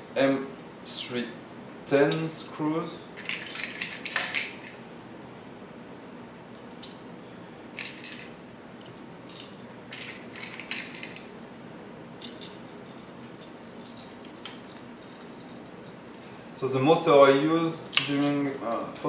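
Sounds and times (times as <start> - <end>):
small parts clicking and rattling: 3.2 - 4.8, 7.8 - 11.3, 12.2 - 16.0, 17.8 - 19.0.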